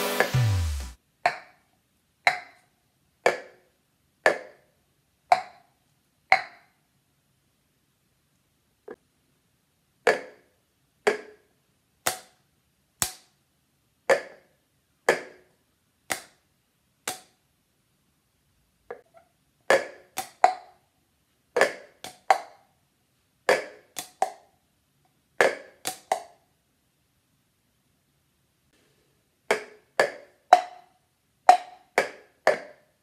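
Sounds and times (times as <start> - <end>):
plastic cups knocking on tile floor: 29.5 - 30.8.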